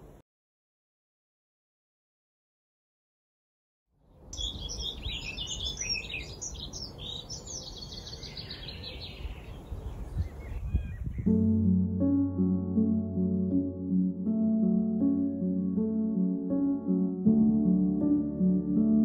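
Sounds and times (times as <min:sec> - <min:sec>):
small birds chirping: 0:04.3 - 0:11.4
wind rumble on microphone: 0:08.8 - 0:11.6.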